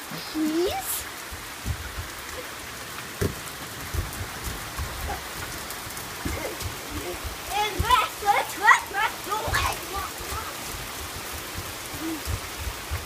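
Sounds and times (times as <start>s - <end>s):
rain on a wooden deck: 0.0s - 13.0s
low thumps: 1.2s - 2.4s, 3.1s - 8.0s.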